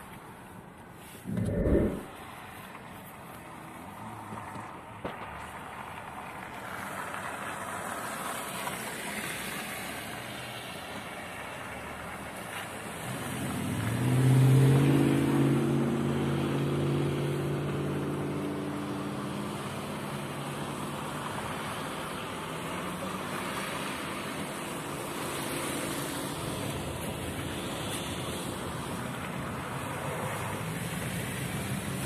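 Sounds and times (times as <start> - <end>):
road and wind noise: 0.0 - 32.0
car engine: 1.0 - 2.7.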